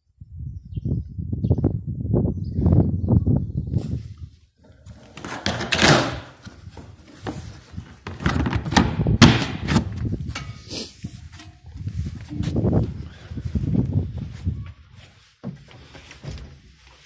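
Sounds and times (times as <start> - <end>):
plastic lid knocking and scraping: 4.9 - 10.0.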